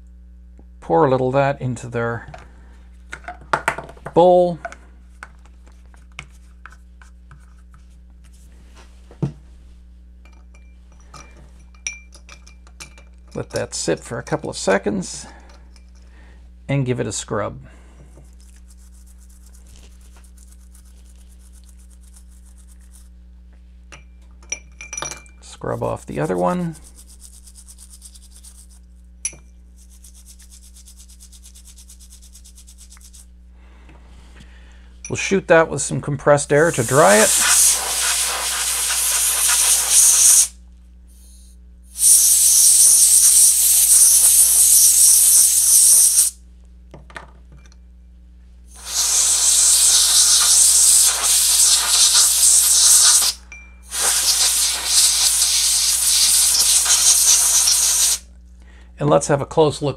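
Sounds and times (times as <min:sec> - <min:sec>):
steady low hum: 0:00.0 - 0:59.9
brush scrubbing circuit board: 0:18.4 - 0:23.1, 0:25.6 - 0:28.8, 0:29.8 - 0:33.3, 0:36.6 - 0:40.5, 0:42.0 - 0:46.3, 0:48.8 - 0:58.2.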